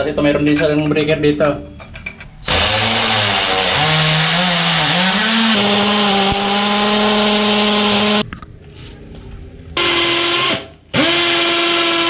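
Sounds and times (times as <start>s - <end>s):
electric drill whining: 2.5s - 8.2s, 9.8s - 12.0s.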